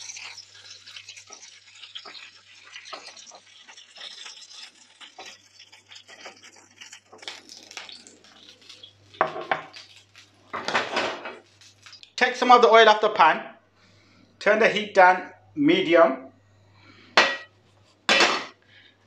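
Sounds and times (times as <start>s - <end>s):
hot oil sizzling in a frying pan: 0.0s - 12.2s.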